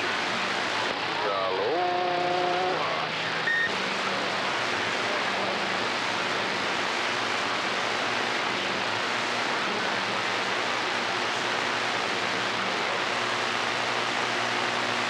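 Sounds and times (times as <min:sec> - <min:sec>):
radio static hiss: 0:00.0 - 0:15.0
high radio beep: 0:03.2 - 0:03.8.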